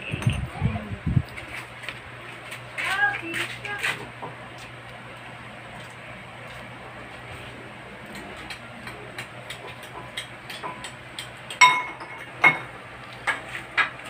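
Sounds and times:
tableware clicks and taps: 8.8 - 14.0
drinking glass clink: 11.6 - 12.7.

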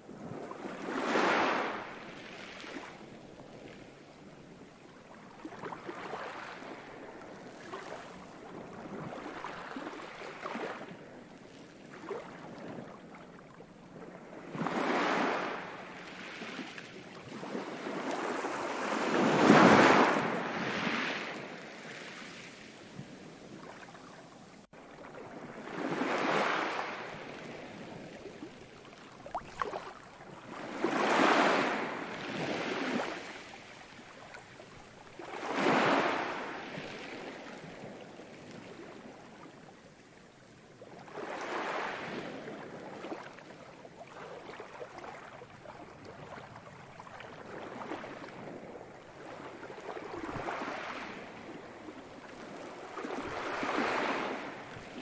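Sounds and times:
ocean waves washing in: 12.0 - 39.4.

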